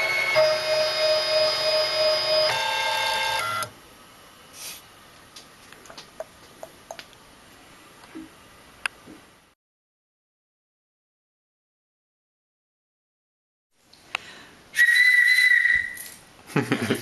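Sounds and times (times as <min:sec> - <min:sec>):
stepper motors whining: 0:00.0 - 0:03.7.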